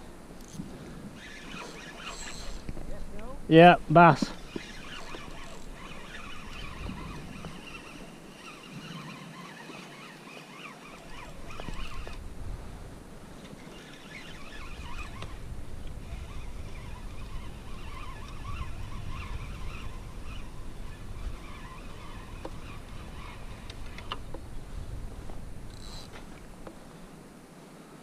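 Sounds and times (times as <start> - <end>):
wind on microphone: 0.0 - 27.2
fishing reel whirring: 0.4 - 3.3, 4.2 - 12.4, 13.1 - 24.7, 25.6 - 27.0
water lapping: 0.6 - 2.8, 4.3 - 24.0
fishing reel clicks: 1.2 - 2.8, 4.4 - 12.2, 13.6 - 24.3, 25.7 - 26.1.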